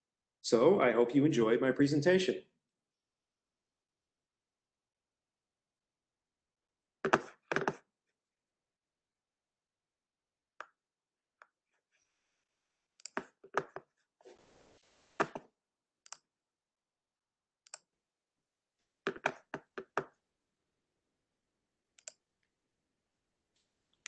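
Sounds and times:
keyboard taps: 0:07.1 - 0:07.8
computer mouse clicks: 0:13.0 - 0:13.9, 0:15.2 - 0:15.4, 0:16.0 - 0:16.3, 0:17.6 - 0:17.9, 0:22.0 - 0:22.2.

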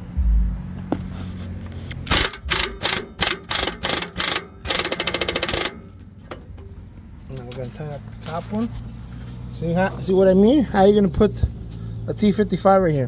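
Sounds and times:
impact wrench hammering: 0:02.0 - 0:06.6.

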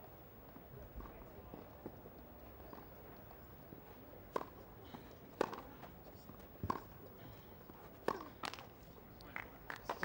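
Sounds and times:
tennis ball struck by rackets: 0:05.4 - 0:05.7, 0:08.0 - 0:08.6.

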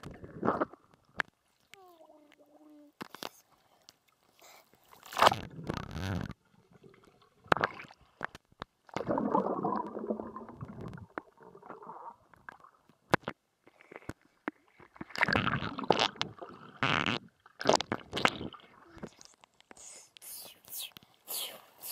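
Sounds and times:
water splashing: 0:00.0 - 0:08.2, 0:08.9 - 0:12.8
muffled underwater bubbling: 0:09.0 - 0:12.7, 0:15.0 - 0:19.2.

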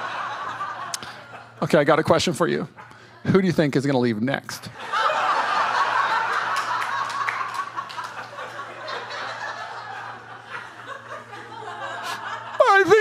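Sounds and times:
congregation laughing: 0:00.0 - 0:01.6, 0:04.7 - 0:13.0.

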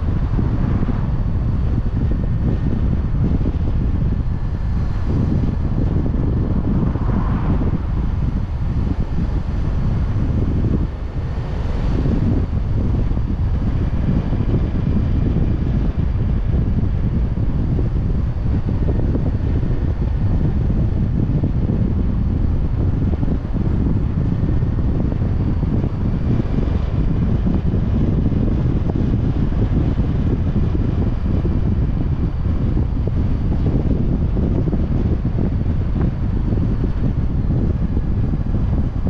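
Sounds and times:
wind buffeting microphone: 0:00.0 - 0:39.0.

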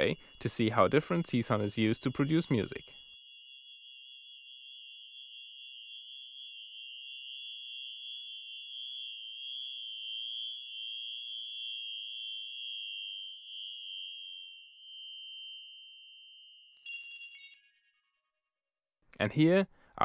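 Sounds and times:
shimmering high sine tones: 0:00.0 - 0:18.6.

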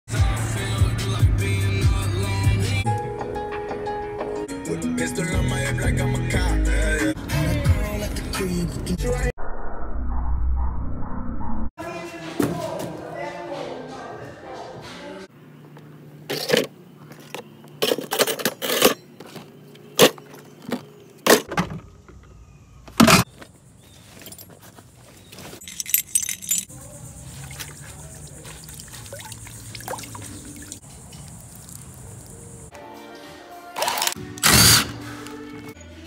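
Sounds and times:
metal parts and tools clinking: 0:16.3 - 0:19.2, 0:24.1 - 0:26.8.

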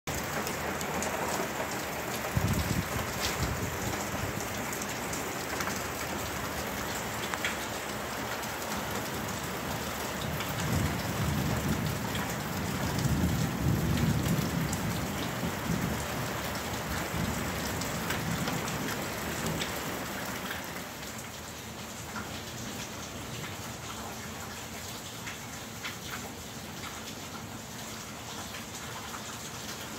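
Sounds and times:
steady rain falling: 0:00.1 - 0:29.9
low rumble of thunder: 0:01.7 - 0:04.9, 0:09.4 - 0:19.8.

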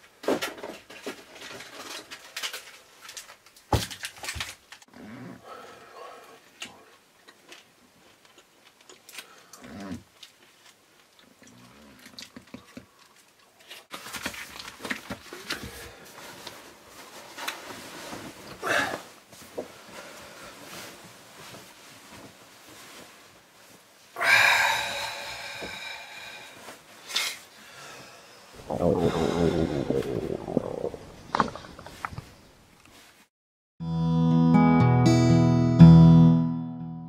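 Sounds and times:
magazine pages rustling: 0:13.2 - 0:18.5.

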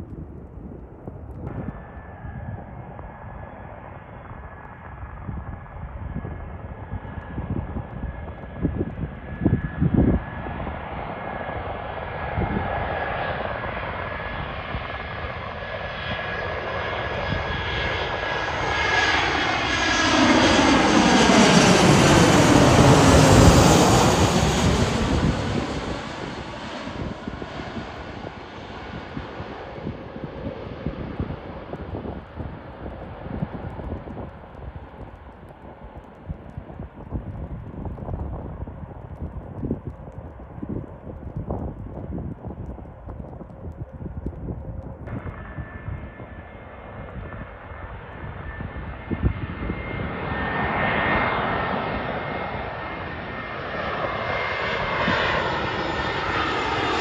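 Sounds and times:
jet airliner flying overhead: 0:00.0 - 0:57.0.

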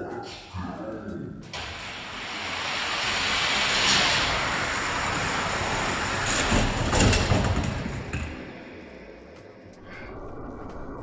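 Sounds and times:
toy cars rolling on plastic track: 0:02.4 - 0:08.4.

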